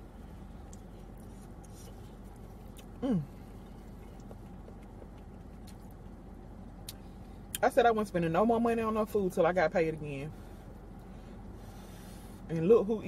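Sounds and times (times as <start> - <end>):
soft chewing: 0.0 - 7.6
car interior hum: 0.0 - 13.0.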